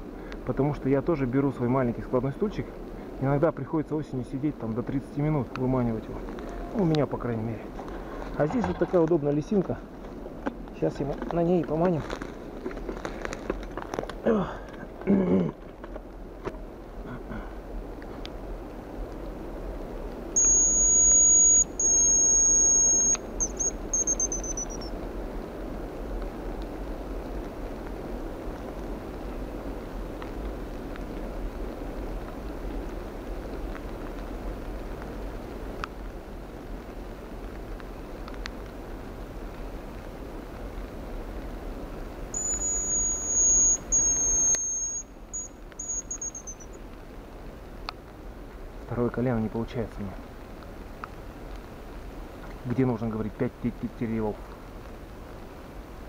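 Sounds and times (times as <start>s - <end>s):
bird decoy whistle: 20.4s - 24.9s, 42.4s - 46.8s.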